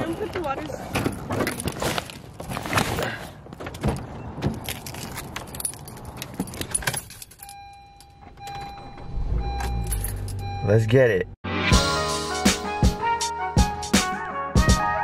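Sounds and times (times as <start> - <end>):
keys jangling: 4.5 - 7.8
repeating electronic beep: 7.5 - 11.0.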